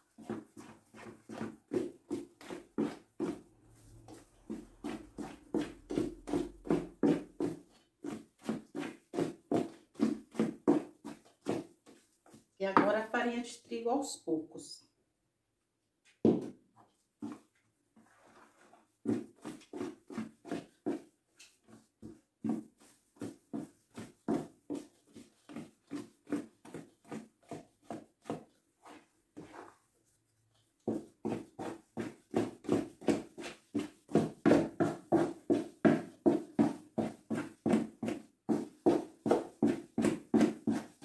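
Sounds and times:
wooden spoon beating batter: 0.0 - 13.3, 16.1 - 41.0.

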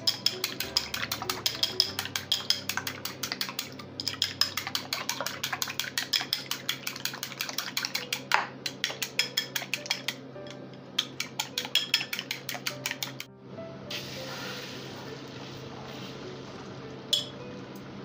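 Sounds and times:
chopsticks beating eggs in a bowl: 0.0 - 10.2, 11.0 - 13.3.

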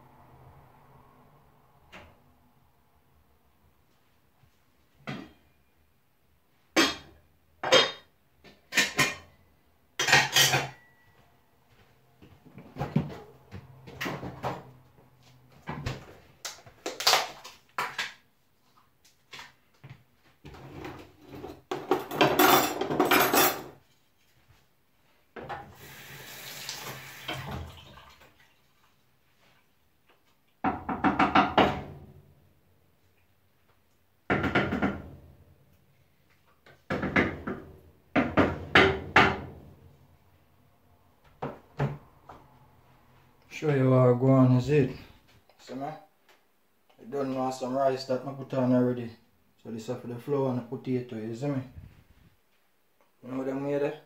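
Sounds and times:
metal pots and utensils clanking: 8.7 - 9.4, 10.0 - 11.0, 21.2 - 23.8
running water: 25.7 - 29.3.

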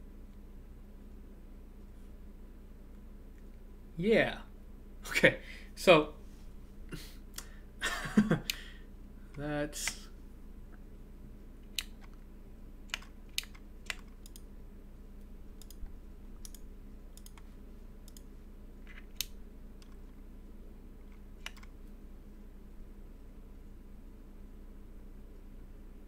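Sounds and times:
low steady hum: 0.0 - 26.0
keyboard clicks and taps: 21.4 - 21.7.

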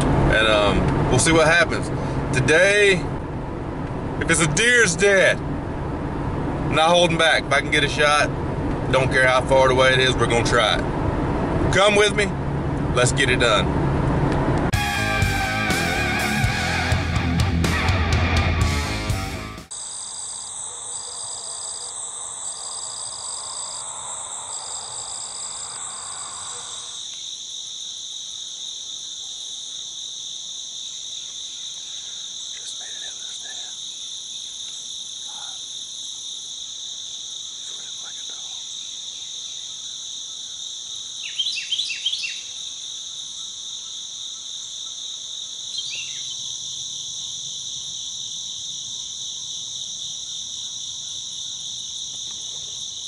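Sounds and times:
crickets and insects trilling: 4.1 - 12.3, 19.7 - 53.0
bird calling: 41.2 - 42.6, 45.7 - 46.4.

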